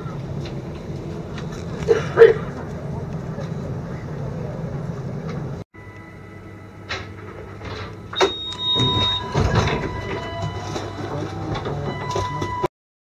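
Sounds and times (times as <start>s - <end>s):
thin steady whine: 3.2s - 12.7s.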